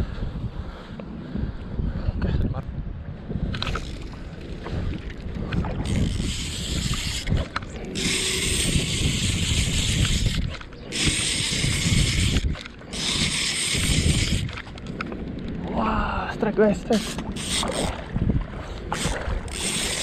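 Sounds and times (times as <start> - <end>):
wind rumbling on microphone: 0.0 - 20.0
spinning reel whirring: 5.8 - 15.6, 16.8 - 18.0, 18.9 - 20.0.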